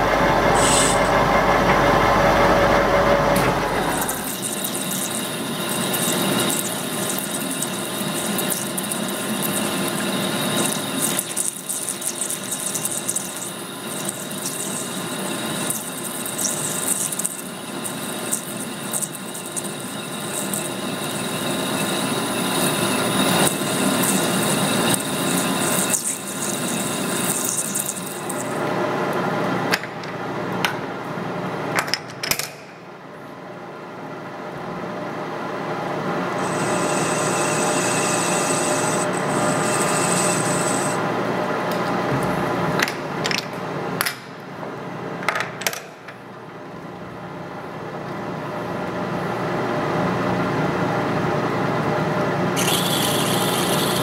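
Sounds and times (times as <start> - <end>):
lathe motor whine: 0.0 - 28.8, 36.0 - 41.5, 52.5 - 54.0
cutting tool hissing: 0.5 - 1.1, 36.4 - 41.0, 52.6 - 54.0.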